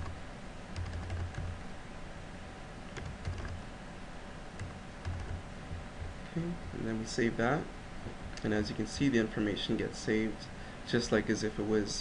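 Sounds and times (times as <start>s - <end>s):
typing on computer keyboard: 0.8s - 1.5s, 3.0s - 3.6s, 4.6s - 5.4s
dull low thuds: 5.2s - 6.2s.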